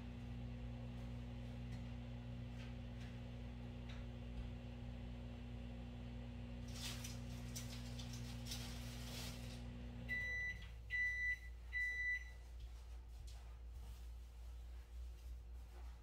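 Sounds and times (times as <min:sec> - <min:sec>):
microwave oven humming: 0:00.0 - 0:12.8.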